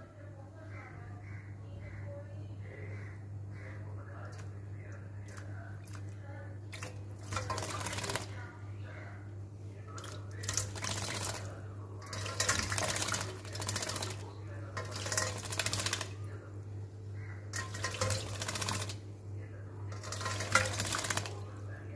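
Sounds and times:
bird splashing in water: 0:04.2 - 0:08.5, 0:09.9 - 0:21.7.

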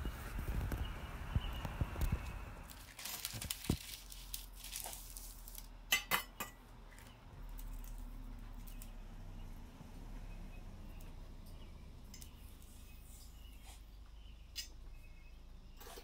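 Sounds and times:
parchment paper rustling: 0:02.6 - 0:05.7.

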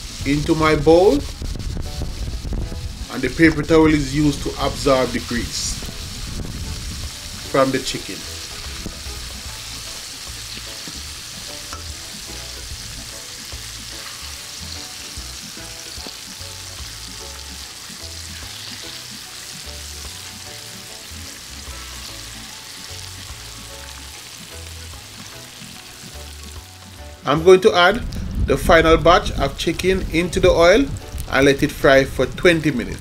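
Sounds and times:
chicken frying in hot oil: 0:00.0 - 0:27.2.

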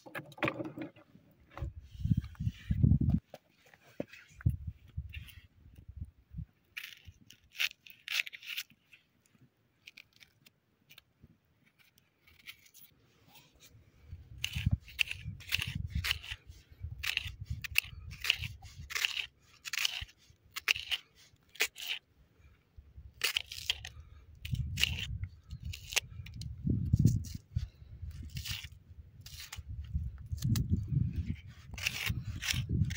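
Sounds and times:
knife cutting food on rock: 0:14.4 - 0:22.1, 0:23.2 - 0:27.5, 0:28.1 - 0:32.9.

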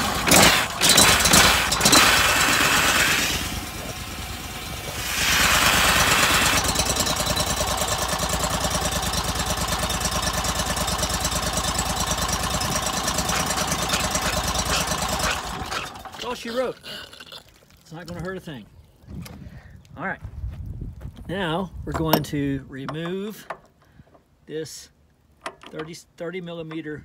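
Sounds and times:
gas engine running: 0:00.0 - 0:16.5
water spray hissing: 0:00.3 - 0:04.0, 0:04.7 - 0:06.9.

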